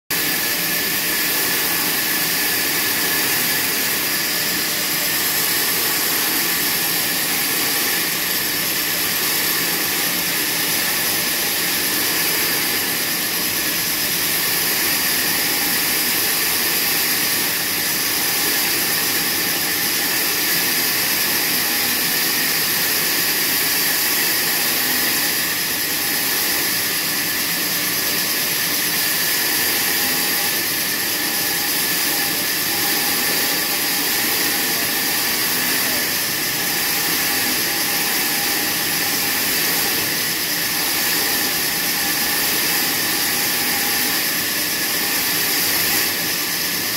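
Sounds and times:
band saw cutting through log: 0.1 - 46.9.

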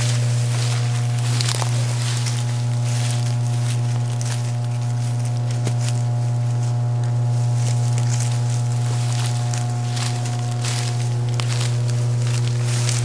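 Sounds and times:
footsteps through brush: 0.0 - 13.0
loud steady low hum: 0.0 - 13.0
rustling of undergrowth: 0.0 - 13.0.

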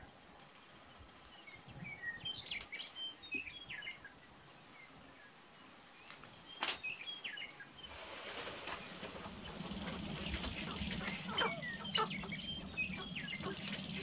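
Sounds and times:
rustling: 7.8 - 14.0
grouse chirping calls: 7.9 - 14.0.

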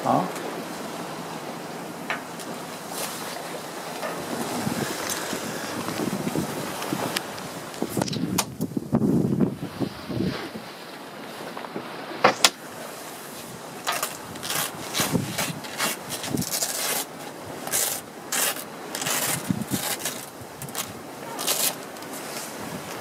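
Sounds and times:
fabric rustling: 2.4 - 7.2, 13.4 - 23.0.

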